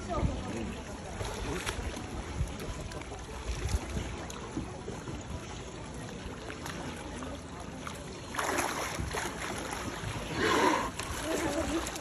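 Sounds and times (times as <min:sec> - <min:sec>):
wind rumble on microphone: 0:00.0 - 0:05.6
water sloshing and splashing: 0:00.0 - 0:12.0.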